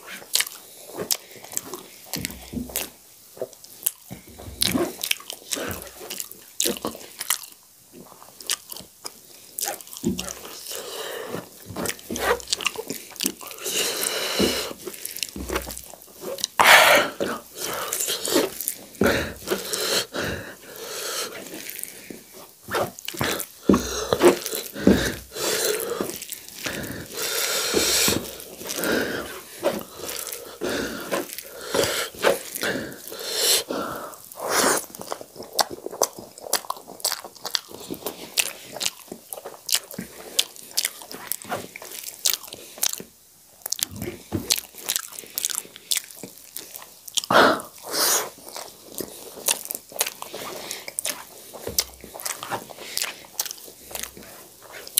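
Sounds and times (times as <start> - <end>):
hand squishing wet rice: 9.6 - 33.4, 43.6 - 54.9.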